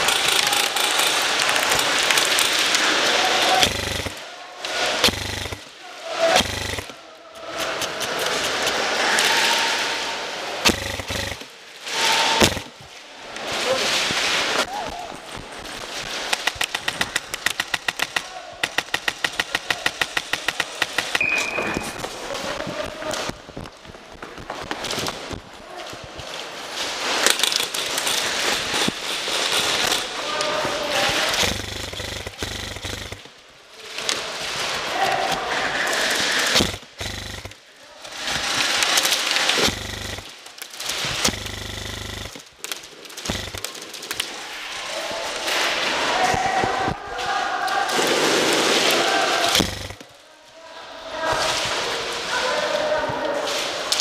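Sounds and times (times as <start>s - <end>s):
airsoft guns firing bursts: 0.0s - 4.2s, 4.8s - 8.8s, 10.6s - 11.5s, 12.3s - 12.8s, 16.2s - 21.3s, 27.3s - 33.4s, 36.0s - 37.6s, 38.3s - 44.2s, 49.4s - 50.1s
other gunfire and clicks: 3.5s - 4.2s, 5.0s - 5.7s, 6.3s - 8.8s, 10.6s - 11.5s, 12.4s - 12.7s, 16.1s - 21.8s, 31.1s - 33.4s, 36.4s - 37.6s, 38.3s - 44.3s, 49.4s - 50.1s
airsoft rifle firing full auto: 5.0s - 5.7s.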